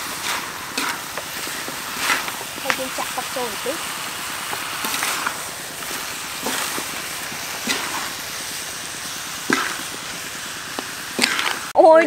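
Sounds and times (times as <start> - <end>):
metal spatula scraping a wok: 0.0 - 11.7
food sizzling in a wok: 0.0 - 12.0.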